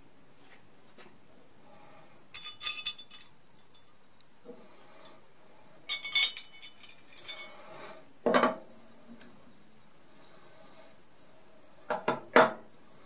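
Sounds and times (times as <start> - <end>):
small metal parts clinking: 2.3 - 4.0, 5.9 - 7.5.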